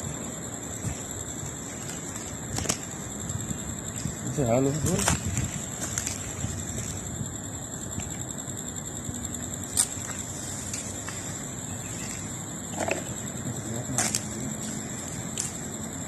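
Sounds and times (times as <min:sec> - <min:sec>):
night insects trilling: 0:00.0 - 0:16.0
dull crunch: 0:04.8 - 0:07.1.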